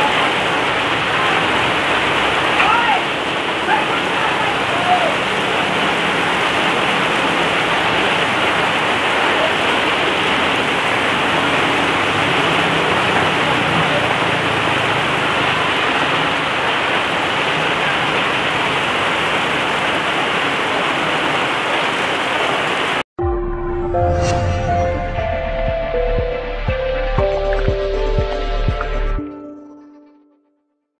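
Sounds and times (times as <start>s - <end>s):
motorbikes passing: 0.0s - 20.1s
heavy rain on a flooded road: 0.0s - 23.0s.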